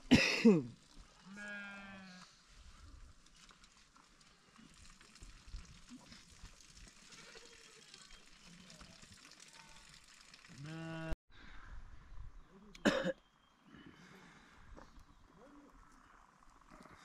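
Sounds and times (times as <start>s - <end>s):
sheep bleat: 1.2s - 2.4s
faint animal sounds: 13.7s - 17.0s.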